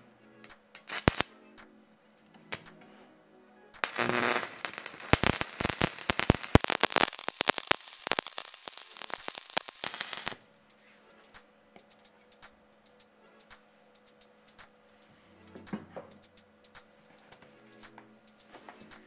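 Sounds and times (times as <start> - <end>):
arc welding crackling: 0.4 - 1.3, 3.8 - 10.4.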